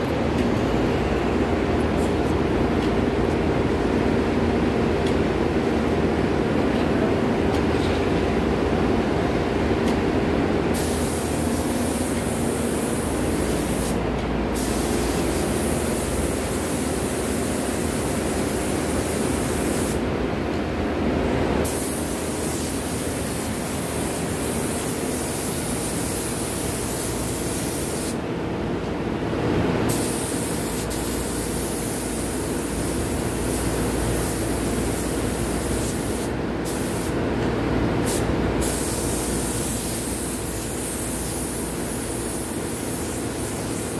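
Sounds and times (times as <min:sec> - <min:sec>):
spray gun hissing: 0:10.7 - 0:14.0, 0:14.6 - 0:20.0, 0:21.6 - 0:28.2, 0:29.9 - 0:37.2, 0:38.1 - 0:43.9.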